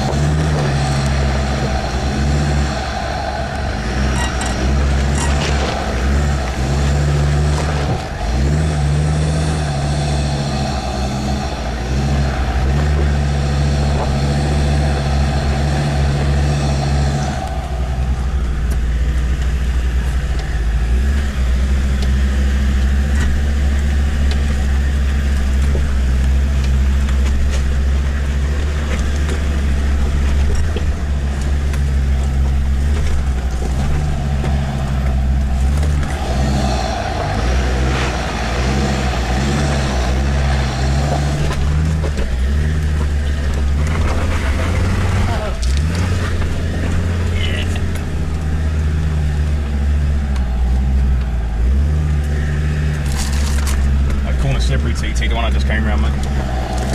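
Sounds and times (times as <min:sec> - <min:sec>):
diesel engine low drone: 0:00.0 - 0:56.9
vehicle knocks and rattles: 0:22.8 - 0:36.4.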